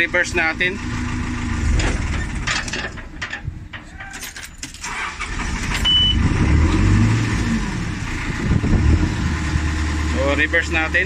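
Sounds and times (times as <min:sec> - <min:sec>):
diesel engine running: 0:00.0 - 0:11.0
sharp clicks and rattles: 0:01.6 - 0:05.9
short high beep: 0:05.8 - 0:06.2.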